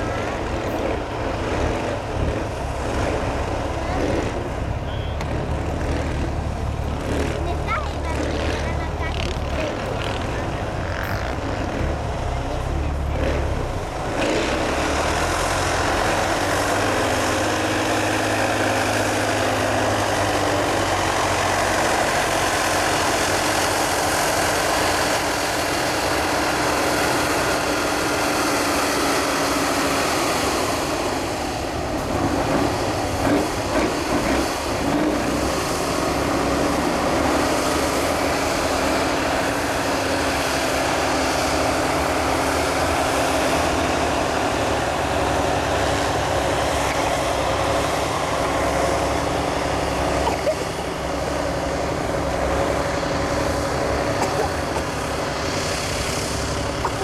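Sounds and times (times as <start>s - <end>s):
heavy diesel truck engine: 0.0s - 57.0s.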